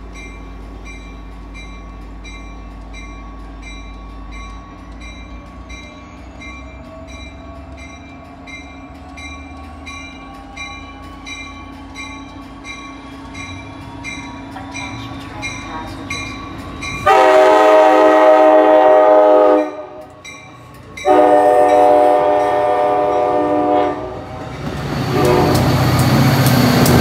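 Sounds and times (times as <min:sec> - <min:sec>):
diesel train running: 0:00.0 - 0:27.0
bell ringing: 0:00.2 - 0:17.2.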